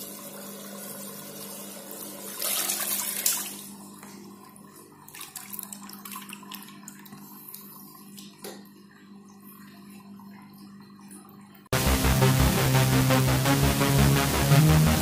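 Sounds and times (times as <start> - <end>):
steady low hum: 11.7 - 15.0.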